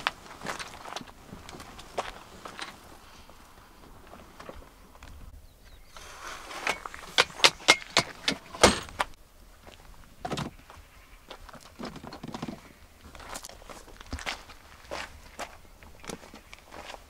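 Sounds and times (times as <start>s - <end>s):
hard objects clicking and knocking: 6.6s - 9.1s.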